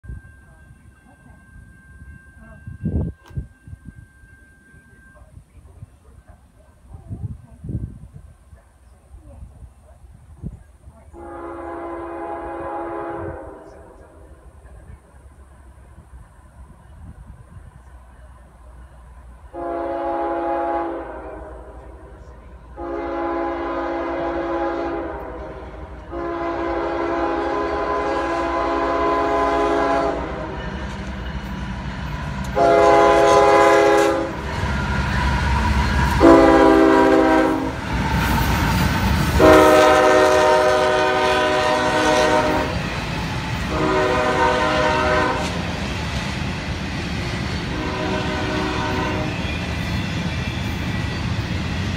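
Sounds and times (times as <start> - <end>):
diesel locomotive rumble: 4.6 - 51.9
train cars rolling by: 8.8 - 51.9
train air horn blasts: 11.1 - 14.2, 19.5 - 22.1, 22.7 - 30.9, 32.5 - 42.9, 43.7 - 45.6, 47.7 - 49.5.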